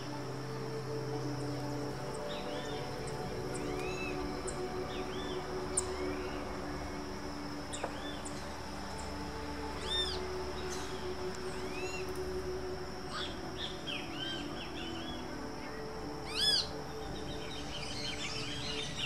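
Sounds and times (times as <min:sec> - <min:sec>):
birds calling squeaky notes: 0:16.2 - 0:19.0.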